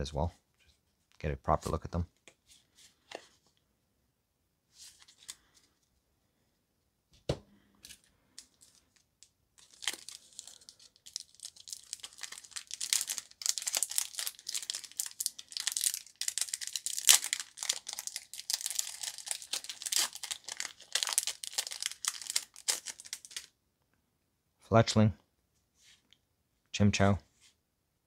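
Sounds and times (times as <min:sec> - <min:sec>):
foil wrapper crinkling and tearing: 0:08.4 - 0:23.5.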